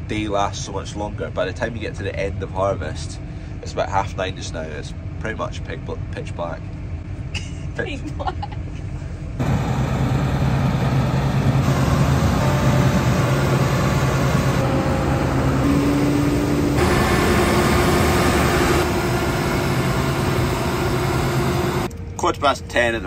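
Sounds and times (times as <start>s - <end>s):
diesel engines droning: 0.0s - 23.0s.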